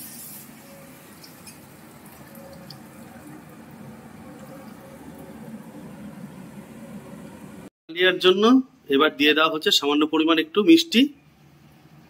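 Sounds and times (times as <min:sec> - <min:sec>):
water poured into a pan: 0:00.0 - 0:05.5
mixture simmering: 0:00.4 - 0:07.7.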